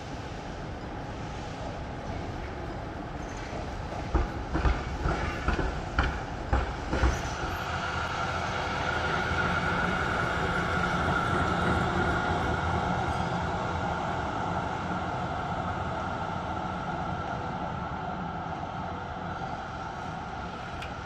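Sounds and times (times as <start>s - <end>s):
tram high whine: 0.0s - 21.0s
tram wheels clattering: 0.8s - 13.6s, 19.8s - 21.0s.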